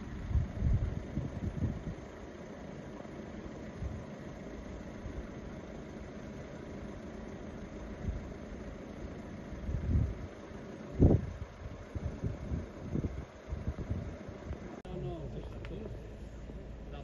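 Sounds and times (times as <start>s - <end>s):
wind buffeting microphone: 0.0s - 2.1s, 9.6s - 10.3s, 10.9s - 14.7s
car engine idling: 0.0s - 17.0s.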